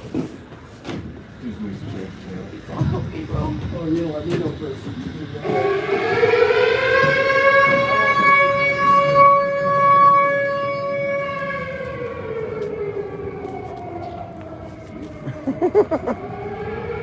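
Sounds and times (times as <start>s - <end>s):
siren wailing: 5.3s - 17.0s.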